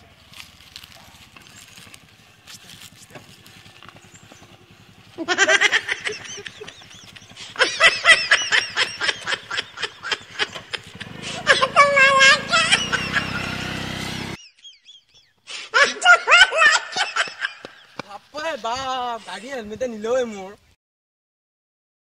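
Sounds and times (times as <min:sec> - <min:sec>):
faint outdoor sounds: 0:00.0 - 0:20.8
loud laughter: 0:05.1 - 0:18.0.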